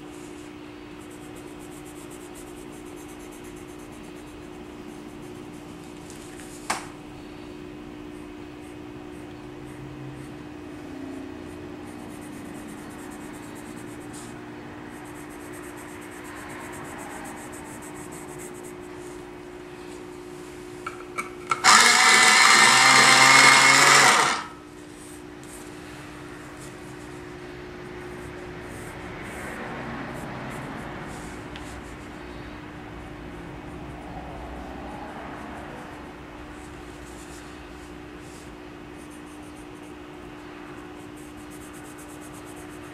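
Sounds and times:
pencil scratching on paper: 0:00.0 - 0:05.8, 0:11.2 - 0:19.2, 0:21.6 - 0:25.7, 0:35.0 - 0:42.9
low steady hum: 0:00.0 - 0:21.6
electric pencil sharpener whirring: 0:21.2 - 0:24.6.

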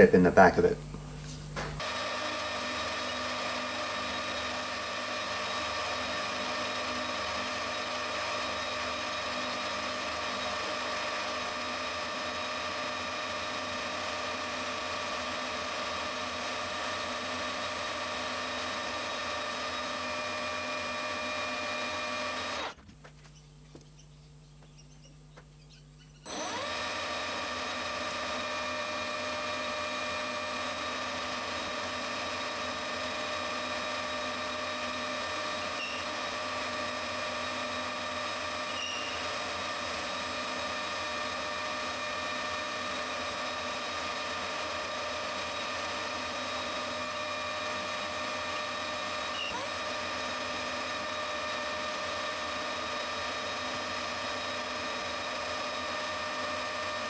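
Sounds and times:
metal lathe whining: 0:01.8 - 0:22.8, 0:24.8 - 0:57.0.

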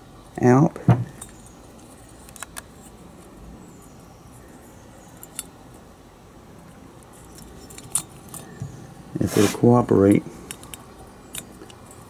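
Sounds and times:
faint metal parts clicking: 0:01.1 - 0:05.8, 0:06.6 - 0:08.8, 0:10.1 - 0:12.0.

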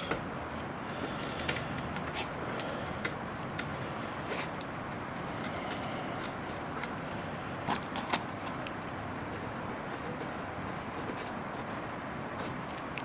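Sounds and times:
masking tape being peeled: 0:01.1 - 0:08.7
small clicks and crackles: 0:01.1 - 0:08.8.

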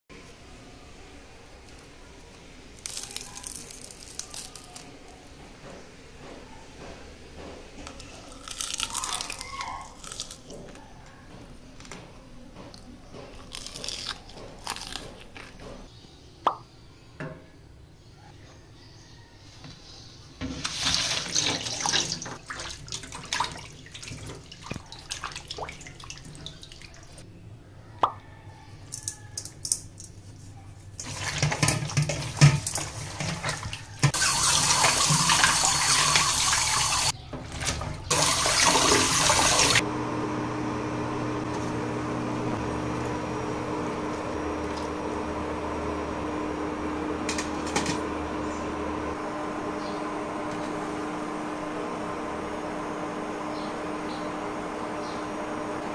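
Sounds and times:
tap water running into basin: 0:20.6 - 0:27.2, 0:31.0 - 0:39.8.

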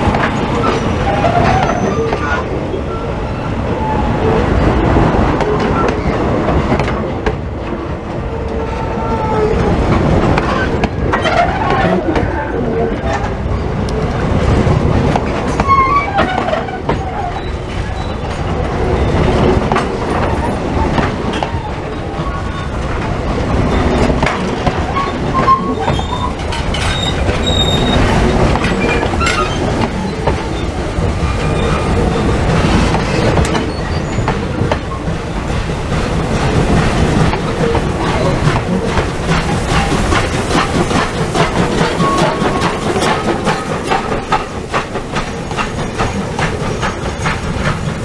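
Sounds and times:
train rumble: 0:00.0 - 0:48.0
train wheels clicking over rail joints: 0:13.1 - 0:48.0
high wheel squeals: 0:24.9 - 0:28.2, 0:33.5 - 0:34.4.

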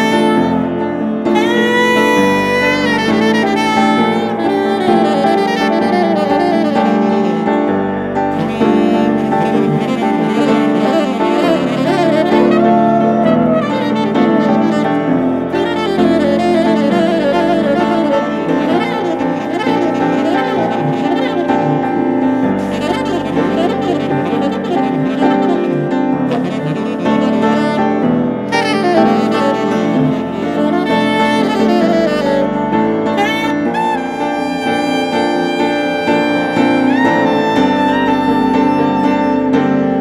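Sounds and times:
piano chords: 0:00.0 - 0:40.0
saxophone melody: 0:00.0 - 0:40.0.

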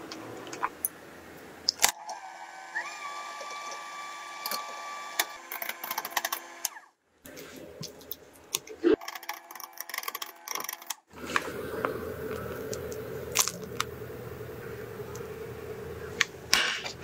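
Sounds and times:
piping bag squishing: 0:11.2 - 0:13.9
plastic bag crinkling: 0:12.2 - 0:13.9.

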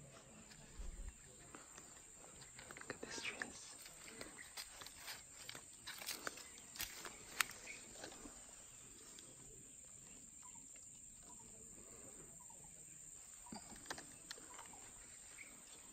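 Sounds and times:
footsteps on dry ground: 0:03.7 - 0:08.6.

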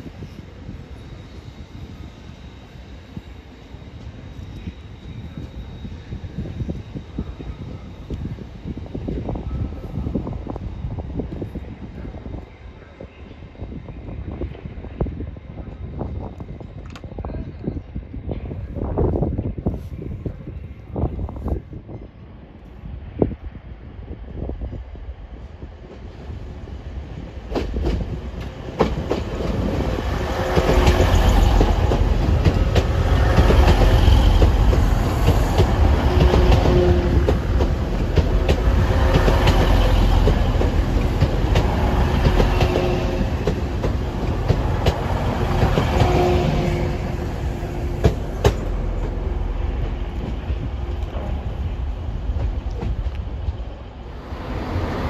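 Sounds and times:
diesel train engines humming: 0:23.0 - 0:55.0.

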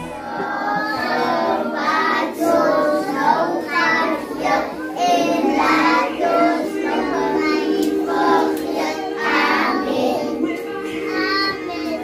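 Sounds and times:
children singing: 0:00.0 - 0:12.0
musical accompaniment of held notes: 0:00.0 - 0:12.0.

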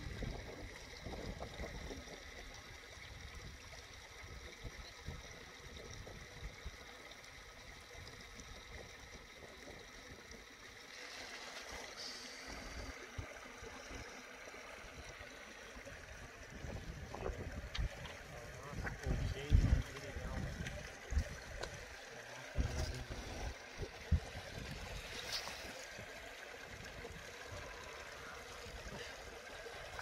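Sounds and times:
wind rumbling on microphone: 0:00.0 - 0:02.5, 0:16.0 - 0:21.8, 0:22.5 - 0:28.0.

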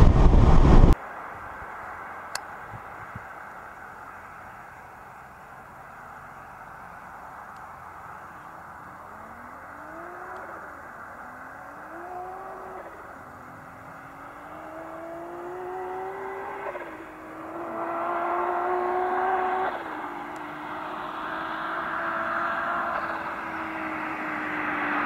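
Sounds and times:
car engine accelerating: 0:06.4 - 0:25.0.

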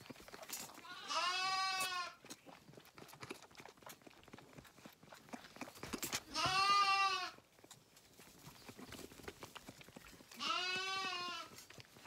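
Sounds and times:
lambs bleating: 0:00.8 - 0:02.2, 0:06.3 - 0:07.4, 0:10.4 - 0:11.5.

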